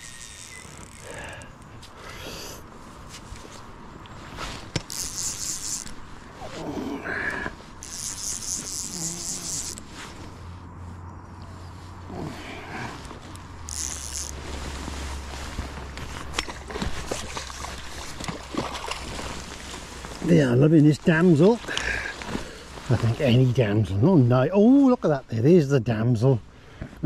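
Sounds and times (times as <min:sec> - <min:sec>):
fishing reel ratchet buzzing: 0:00.0 - 0:01.4, 0:04.8 - 0:06.0, 0:07.8 - 0:09.8, 0:13.7 - 0:14.4.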